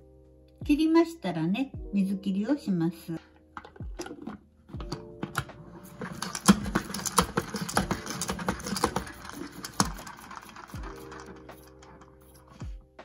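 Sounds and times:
salad spinner clattering clicks: 4.8 - 12.3.

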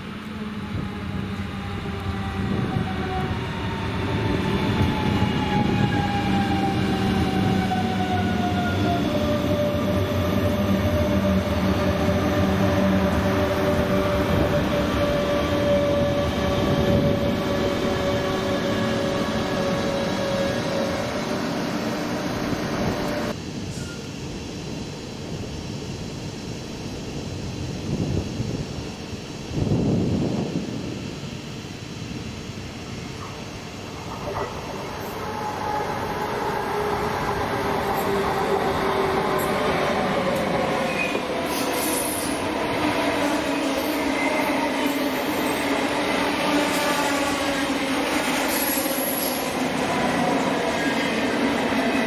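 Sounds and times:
train traction motors whining: 0.2 - 24.0.

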